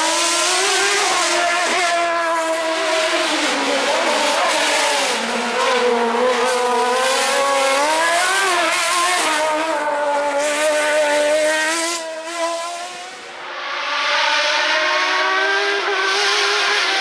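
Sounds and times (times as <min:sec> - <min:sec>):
car engine revving hard: 0:00.0 - 0:17.0.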